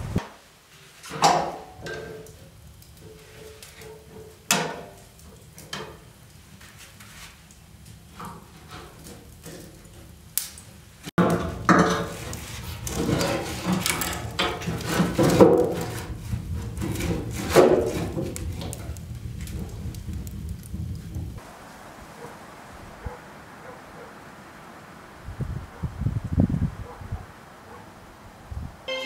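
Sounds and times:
logs knocking and scraping in stove: 1.0 - 10.2, 11.2 - 21.4.

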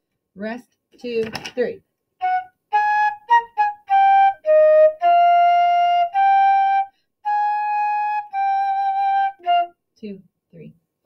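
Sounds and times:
solo flute playing: 2.2 - 9.8.

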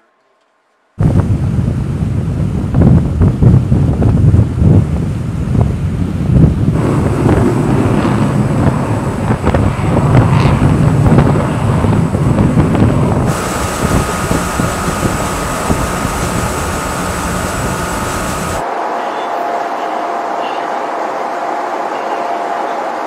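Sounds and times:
low rumble: 1.0 - 18.6
wind buffeting microphone: 1.0 - 18.6
faint steady whine: 13.2 - 18.7.

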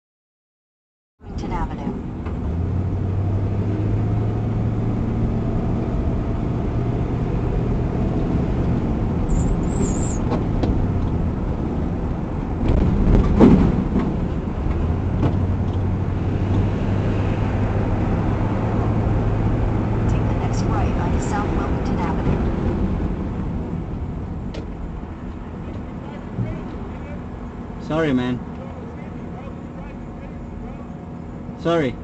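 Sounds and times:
car road and engine noise: 1.2 - 32.0
car bump with rattling clicks: 10.2 - 11.2, 12.6 - 15.9, 24.4 - 27.1.

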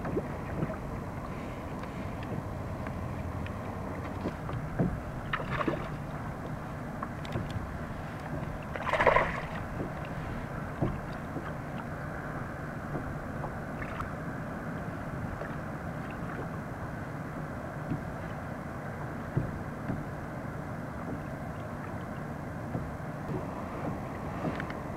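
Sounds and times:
faint underwater knocks: 0.0 - 12.0, 12.9 - 14.1, 17.3 - 18.4, 19.3 - 20.1, 21.0 - 24.8
water splashing: 0.0 - 16.6
muffled underwater wash: 0.0 - 24.9.

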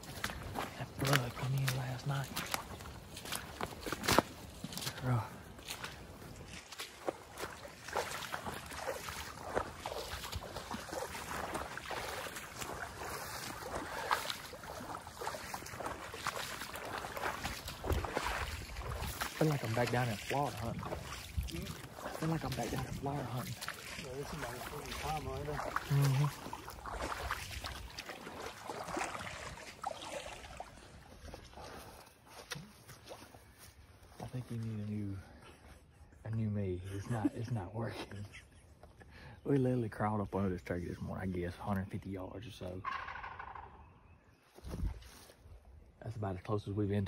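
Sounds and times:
footsteps splashing through water: 0.0 - 35.8, 44.5 - 45.8.

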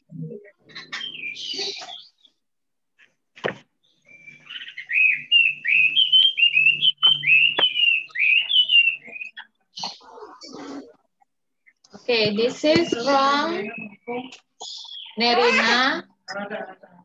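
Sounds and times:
bird whistling: 0.7 - 2.3, 4.0 - 10.0, 12.9 - 15.2.

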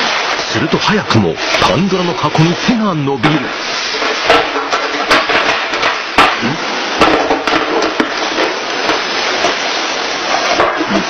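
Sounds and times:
steady hiss: 0.0 - 11.0.

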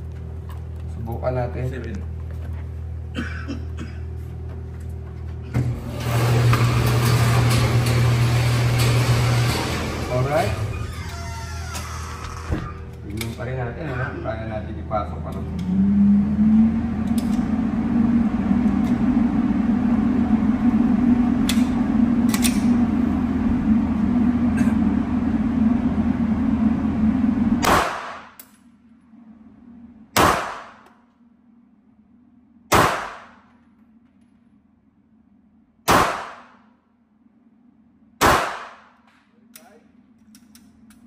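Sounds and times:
steady loud hum: 0.0 - 41.0
pistol shots: 27.6 - 28.3, 30.2 - 30.9, 32.7 - 33.4, 35.8 - 36.6, 38.2 - 39.0.

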